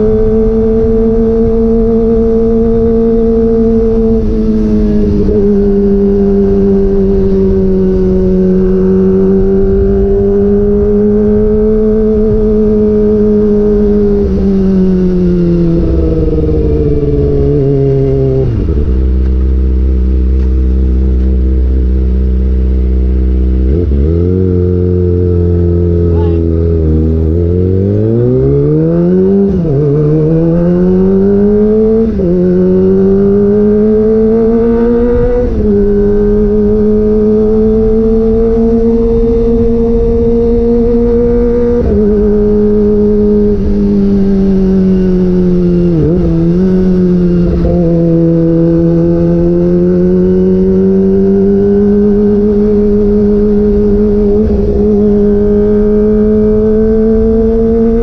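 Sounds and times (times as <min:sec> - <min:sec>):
motorcycle engine revving: 0:00.0 - 0:58.0.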